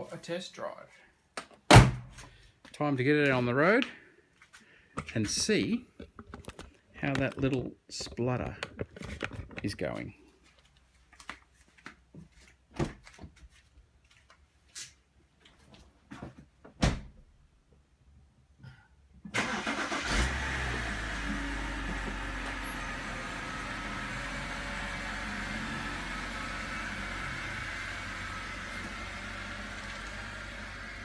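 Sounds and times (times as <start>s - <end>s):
car engine starting and idling: 19.3s - 31.0s.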